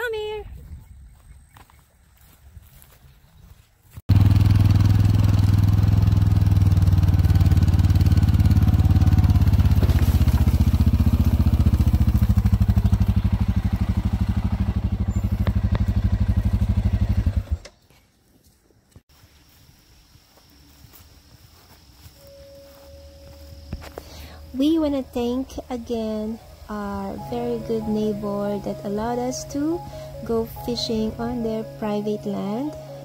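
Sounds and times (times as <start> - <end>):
small engine running: 4.1 - 17.7, 23.5 - 33.0.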